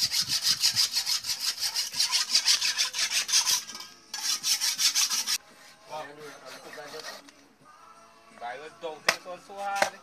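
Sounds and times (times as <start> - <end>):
blade rasping back and forth: 0.0 - 5.4, 6.0 - 7.4.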